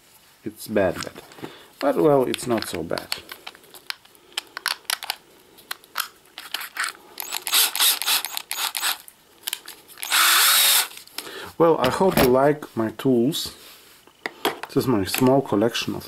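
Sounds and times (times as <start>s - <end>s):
drill chuck clicking and rattling: 6.4s - 11.0s
drill whirring: 7.2s - 9.0s, 10.0s - 10.9s.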